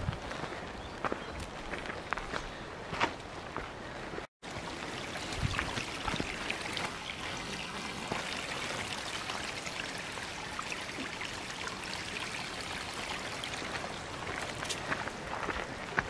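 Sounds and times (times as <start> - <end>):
creek running over stones: 4.4 - 16.0.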